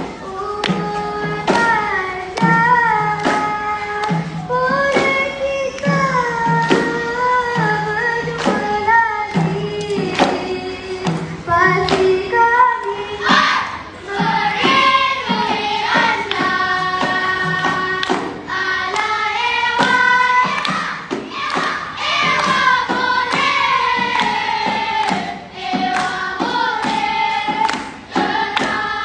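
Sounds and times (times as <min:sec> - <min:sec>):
children singing in unison: 0:00.0 - 0:29.0
sharp percussive hits: 0:00.0 - 0:29.0.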